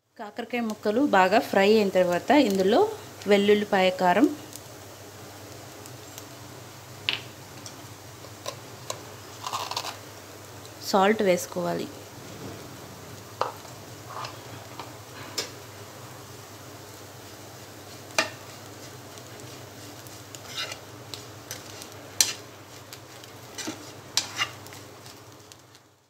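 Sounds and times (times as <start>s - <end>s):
spatula scraping frying pan: 13.4s - 15.5s, 17.8s - 24.8s.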